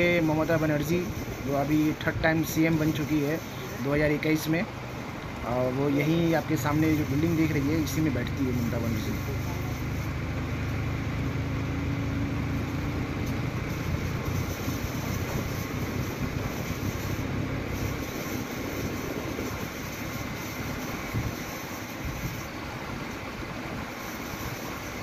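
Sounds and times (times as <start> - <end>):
wind and road noise: 0.0 - 25.0
motorcycle engine running: 4.7 - 22.6.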